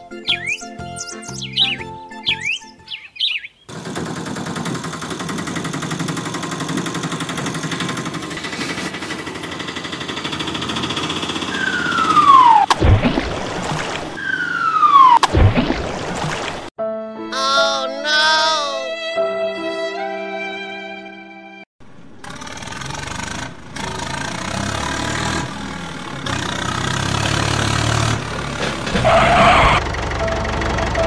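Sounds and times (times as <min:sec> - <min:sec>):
dense layered cartoon sound: 0:11.4 - 0:13.4, 0:14.2 - 0:15.9
falling whistle: 0:11.5 - 0:12.7, 0:14.2 - 0:15.2.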